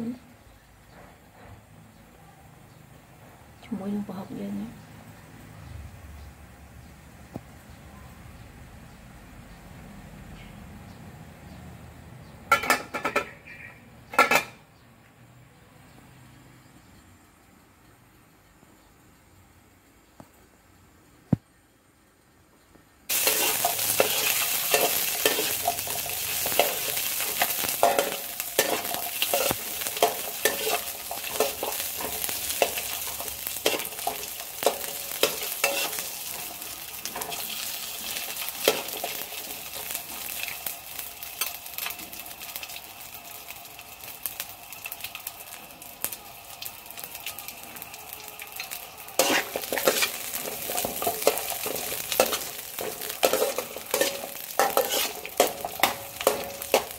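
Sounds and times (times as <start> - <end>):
garlic and chilies sizzling in oil: 0.0 - 14.9, 22.0 - 56.9
metal spatula scraping a wok: 23.1 - 42.0, 48.6 - 56.9.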